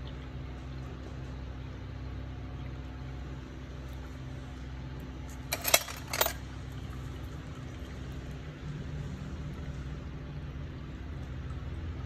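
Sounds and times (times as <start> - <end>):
steady low hum: 0.0 - 12.0
metal instruments clinking: 5.5 - 6.4.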